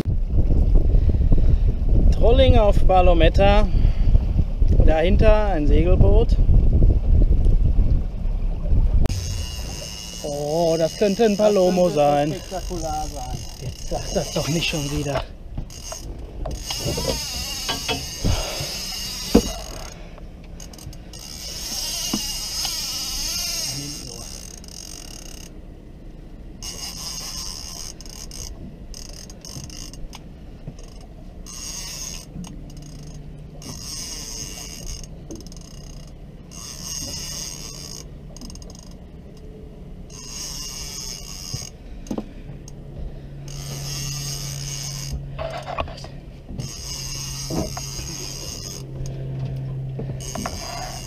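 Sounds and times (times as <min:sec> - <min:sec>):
steady low hum: 0:00.0 - 0:51.0
fishing reel ratcheting: 0:09.1 - 0:25.6, 0:26.6 - 0:49.6, 0:50.2 - 0:51.0.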